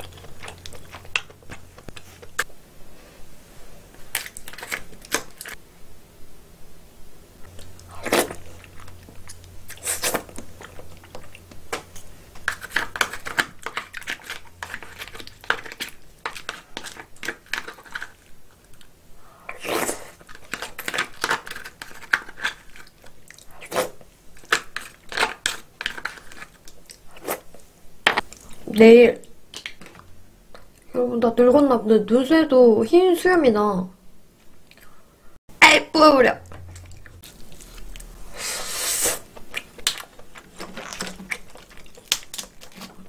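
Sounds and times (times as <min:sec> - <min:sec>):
person chewing: 0:00.0 - 0:02.5, 0:07.4 - 0:28.7, 0:34.6 - 0:35.0, 0:36.5 - 0:43.0
crab shell cracking: 0:04.1 - 0:05.6, 0:07.5 - 0:18.3, 0:20.2 - 0:23.1, 0:24.4 - 0:27.0, 0:39.3 - 0:43.0.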